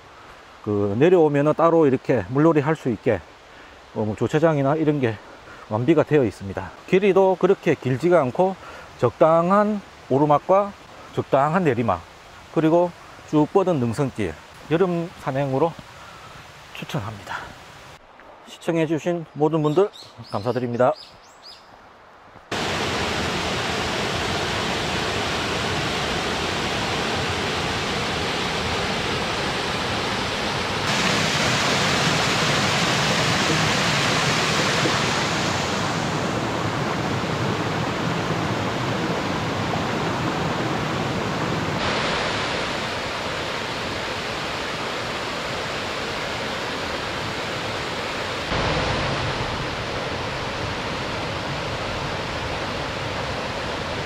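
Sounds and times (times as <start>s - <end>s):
stream rushing over stones: 22.5s - 54.0s.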